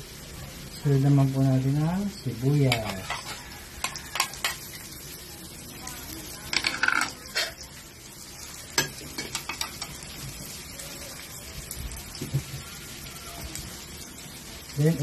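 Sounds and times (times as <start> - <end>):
garlic and onion sizzling in oil: 0.0 - 15.0
utensil clinking and scraping wok: 2.2 - 10.6.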